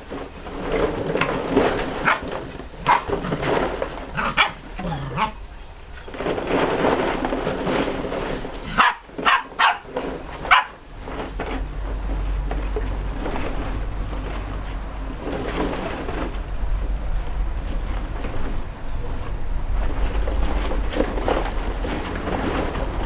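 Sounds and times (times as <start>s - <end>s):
plastic balls rustling: 0.0s - 5.3s, 5.9s - 16.7s
puppies barking: 2.0s - 3.3s, 4.2s - 5.4s, 8.7s - 10.8s.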